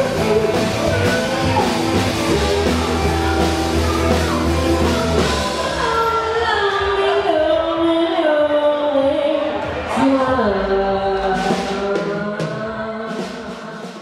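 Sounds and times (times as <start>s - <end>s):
bass guitar: 0.0s - 8.0s, 9.7s - 12.4s
drums: 0.0s - 14.0s
woman singing: 0.0s - 14.0s.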